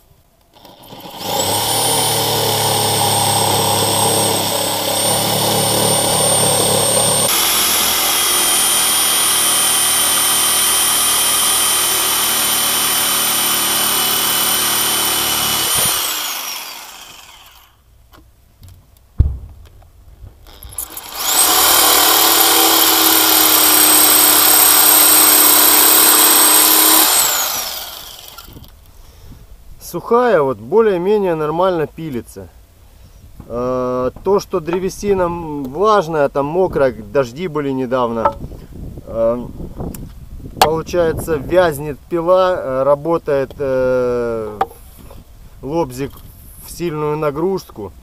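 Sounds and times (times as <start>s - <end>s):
electric jigsaw cutting wood: 0.5s - 17.8s, 20.5s - 28.7s.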